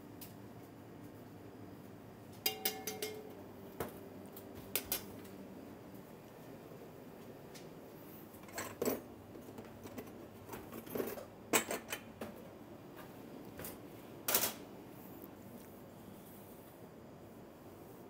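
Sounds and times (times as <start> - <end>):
low background hum: 0.0 - 18.0
dishes and utensils clinking: 2.4 - 3.4, 8.4 - 9.1, 10.8 - 12.1.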